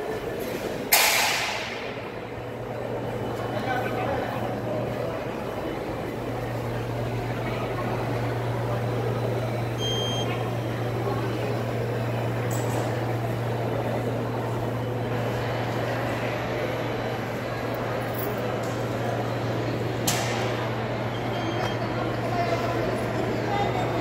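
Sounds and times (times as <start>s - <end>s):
short electronic beep: 9.8s - 10.3s.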